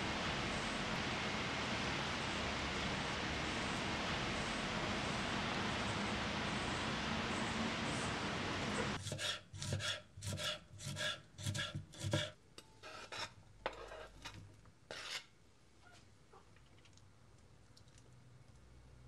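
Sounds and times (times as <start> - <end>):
steady rain hiss: 0.0 - 9.0
knife chopping on wooden board: 9.0 - 12.3.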